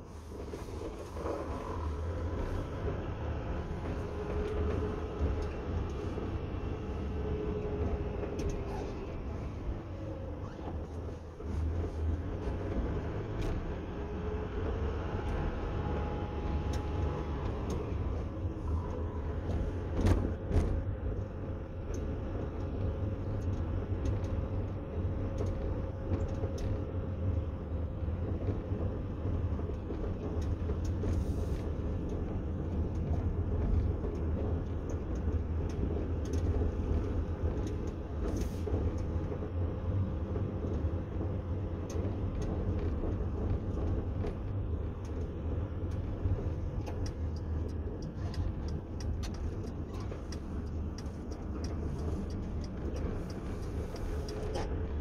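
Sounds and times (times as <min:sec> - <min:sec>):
car engine and tyre rumble: 0:00.0 - 0:55.0
light ticks: 0:16.5 - 0:17.9, 0:21.8 - 0:27.5, 0:29.4 - 0:55.0.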